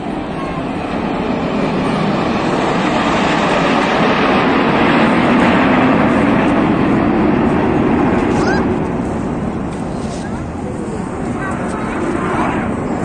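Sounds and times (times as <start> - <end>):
jet engines flying past: 0.0 - 13.0.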